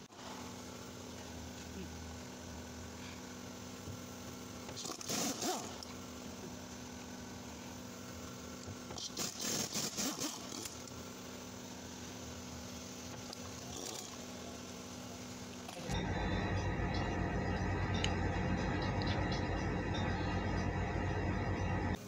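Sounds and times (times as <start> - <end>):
car drivetrain humming: 15.9 - 22.0.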